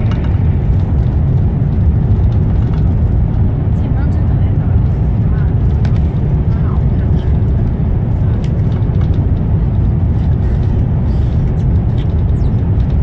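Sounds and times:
train rumble inside carriage: 0.0s - 13.0s.

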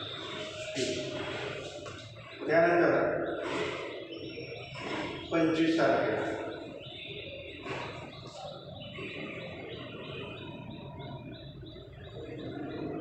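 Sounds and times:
rhythmic chirping: 0.0s - 13.0s.

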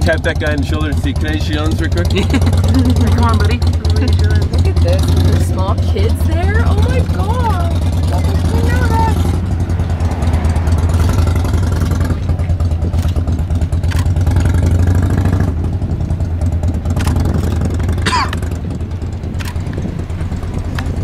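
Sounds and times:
car engine idling: 0.0s - 21.0s
sharp clicks: 12.8s - 14.3s, 16.9s - 17.6s, 19.3s - 19.9s.

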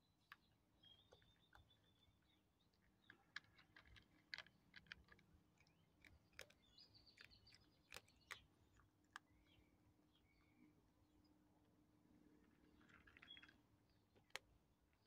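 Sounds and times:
cat crunching dry kibble: 2.9s - 9.4s.

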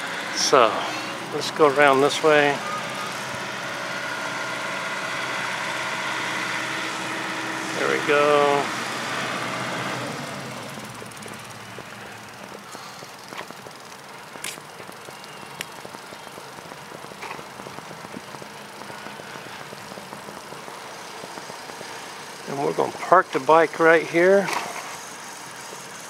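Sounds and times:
bicycle rolling noise: 0.0s - 26.0s
sharp clicks: 10.7s - 22.1s.

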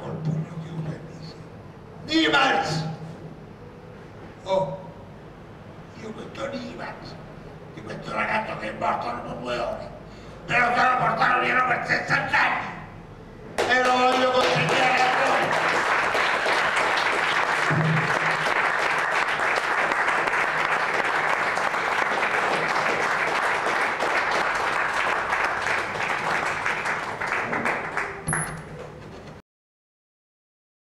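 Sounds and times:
audience applauding: 13.6s - 28.3s.

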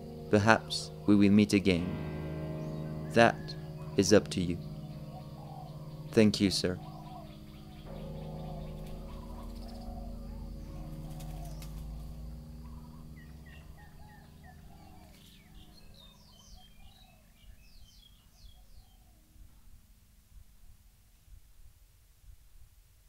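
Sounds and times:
birds chirping and calling: 0.0s - 19.2s
low steady hum: 0.0s - 22.5s.

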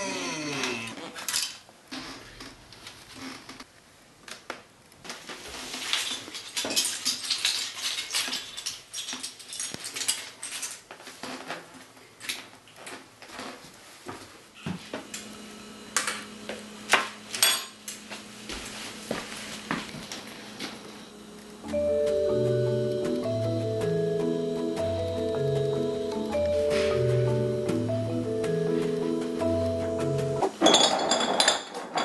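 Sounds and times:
kitchen items clinking: 5.6s - 11.2s, 30.4s - 32.0s
plastic toy bricks clattering: 5.8s - 10.9s, 30.6s - 32.0s
steady low hum: 15.1s - 30.4s.

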